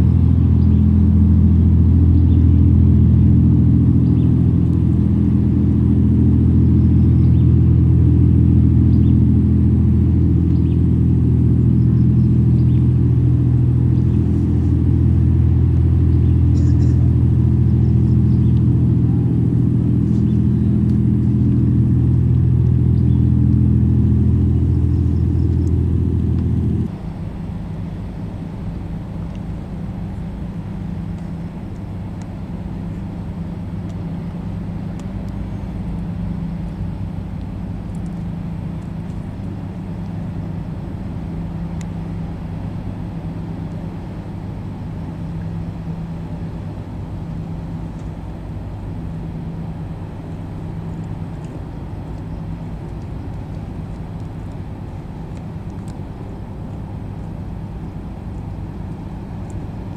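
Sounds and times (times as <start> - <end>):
ferry engines droning: 0.0 - 59.9
quieter ferry engine drone: 0.0 - 59.9.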